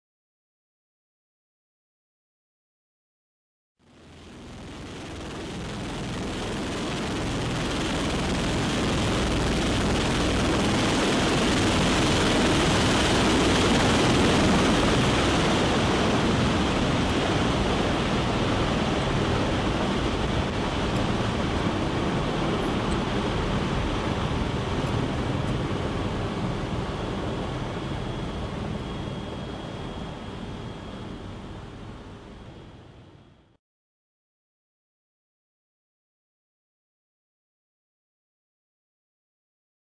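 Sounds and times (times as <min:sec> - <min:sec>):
aircraft rotor roar: 0:03.9 - 0:33.3
wind through open ramp: 0:03.9 - 0:33.4.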